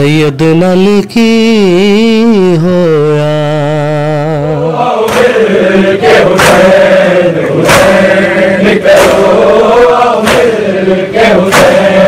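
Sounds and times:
men chanting a lament: 0:00.0 - 0:12.0
sharp beat: 0:07.6 - 0:10.8.

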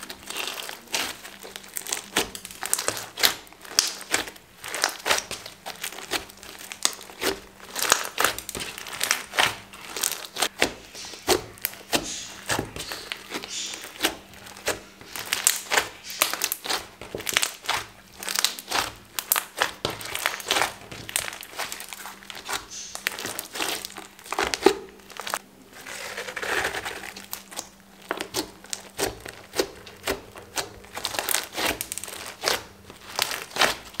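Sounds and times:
slime crackling being kneaded: 0:00.0 - 0:34.0.

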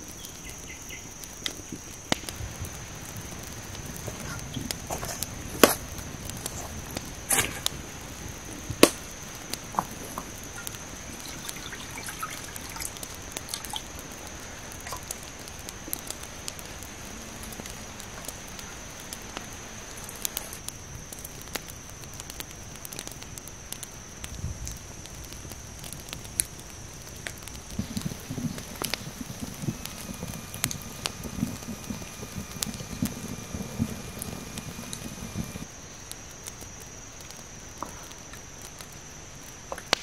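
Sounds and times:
sharp pops from fire: 0:00.0 - 0:40.0
wood fire crackling: 0:00.0 - 0:40.0
water trickling into a pan: 0:09.8 - 0:15.3.

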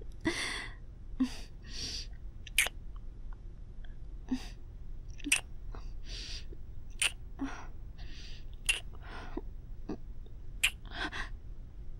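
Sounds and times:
kissing sounds: 0:02.5 - 0:02.8, 0:05.2 - 0:05.5, 0:07.0 - 0:07.2, 0:08.6 - 0:08.9, 0:10.6 - 0:10.9.

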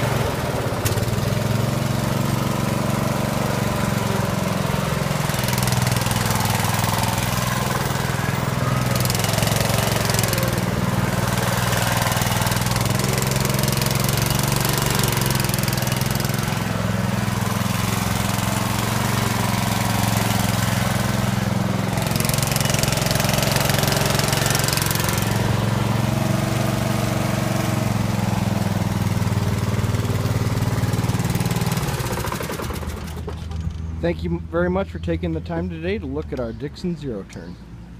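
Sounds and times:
riding mower engine running: 0:00.0 - 0:37.9.

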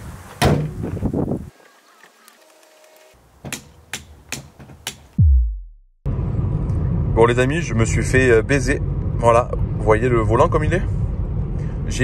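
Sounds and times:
low falling tone: 0:05.2 - 0:09.8.

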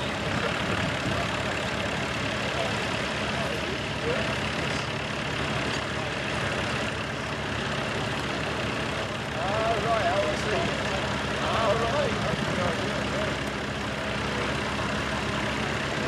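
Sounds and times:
tractor diesel engine under load: 0:00.0 - 0:16.0.

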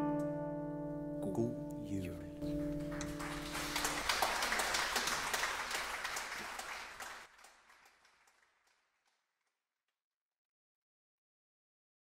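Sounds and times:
audience applauding: 0:02.6 - 0:09.2.

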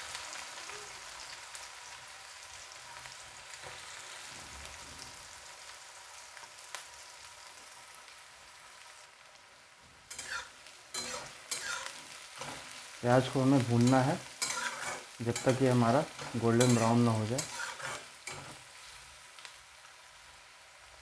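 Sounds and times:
onions sizzling in hot oil: 0:00.0 - 0:21.0
spatula scraping and stirring: 0:10.1 - 0:19.0.

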